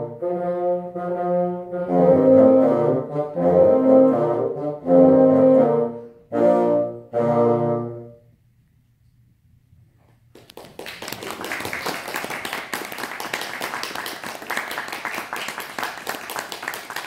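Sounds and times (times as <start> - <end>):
audience applause: 10.4 - 17.0.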